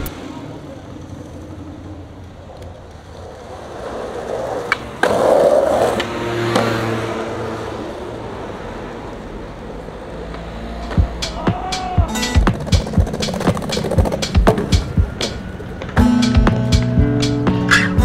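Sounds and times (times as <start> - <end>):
skateboard rolling on asphalt: 0.0 - 11.2, 12.2 - 16.0.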